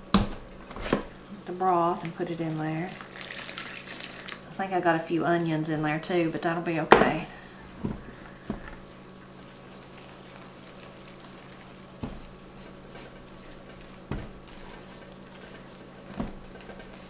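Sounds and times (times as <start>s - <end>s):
steady low hum: 4.1s - 17.0s.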